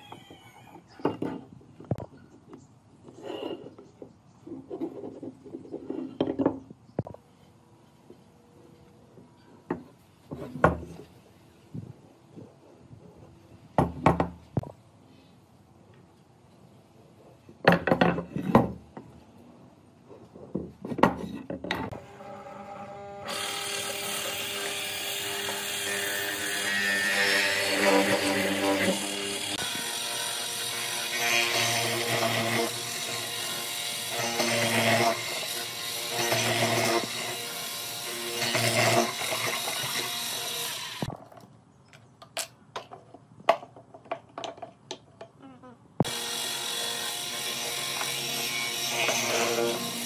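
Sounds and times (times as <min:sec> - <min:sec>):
wooden workpieces knocking: 0:03.9 - 0:07.2, 0:13.8 - 0:14.7, 0:41.1 - 0:45.4.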